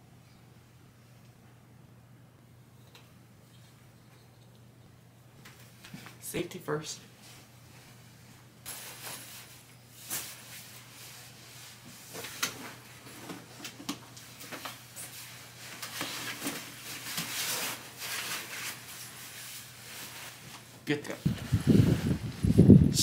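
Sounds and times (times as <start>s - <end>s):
rustling of padded jacket: 21.3s - 22.7s.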